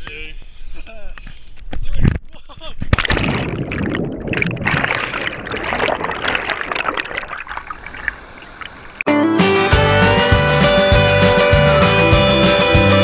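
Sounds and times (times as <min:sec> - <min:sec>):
splash into pool: 0:02.9 - 0:09.0
water bubbling underwater: 0:02.9 - 0:09.0.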